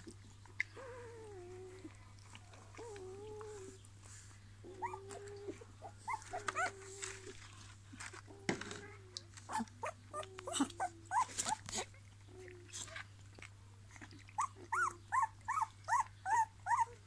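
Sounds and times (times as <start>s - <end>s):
puppies whining: 0.5s - 3.9s, 4.6s - 7.4s, 8.7s - 12.6s, 14.1s - 17.0s.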